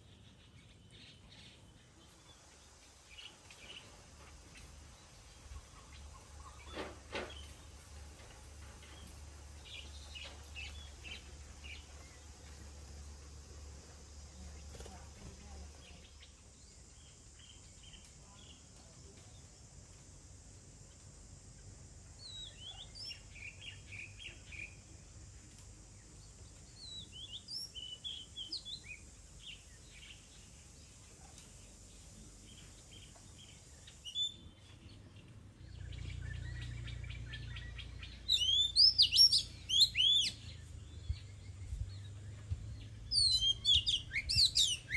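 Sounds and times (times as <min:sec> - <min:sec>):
faint bird chirps: 0:00.0 - 0:07.8, 0:21.6 - 0:24.9, 0:26.0 - 0:44.9
low steady hum: 0:00.0 - 0:44.9
bird singing whistled notes: 0:22.2 - 0:24.8, 0:26.7 - 0:30.3, 0:32.5 - 0:35.0, 0:35.7 - 0:44.9.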